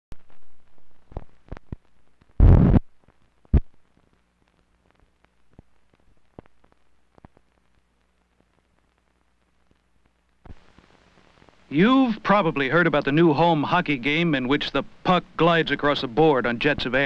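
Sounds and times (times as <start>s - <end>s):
film soundtrack clicks and pops: 0.2s - 11.7s
faint low hum: 0.2s - 17.0s
loud burst of noise: 2.4s - 2.8s.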